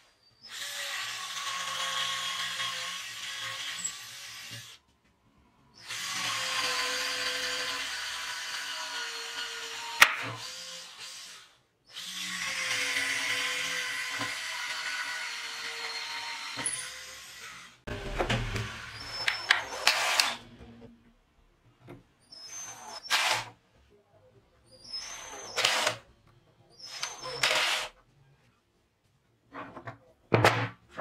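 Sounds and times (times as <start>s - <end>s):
electric drill whining: 0.4s - 4.8s, 5.8s - 17.8s, 18.5s - 20.5s, 22.3s - 23.6s, 24.9s - 26.0s, 26.8s - 27.9s.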